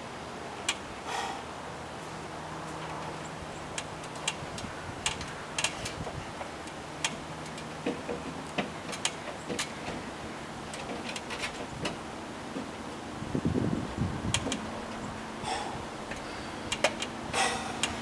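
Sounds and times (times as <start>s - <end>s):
steady low hum: 0.0s - 18.0s
storm window clicks and taps: 14.2s - 14.7s.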